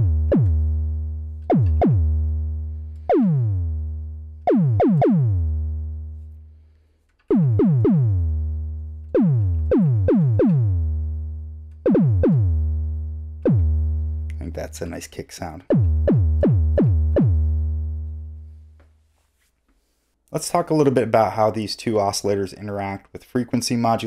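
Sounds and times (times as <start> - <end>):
synthesizer kick drum hits: 0.0 - 6.2, 7.3 - 14.6, 15.7 - 18.4.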